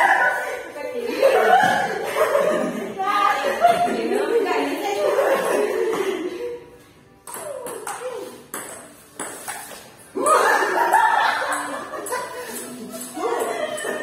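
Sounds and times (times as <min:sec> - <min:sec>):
ping-pong ball hitting paddles: 0:07.2 - 0:09.8.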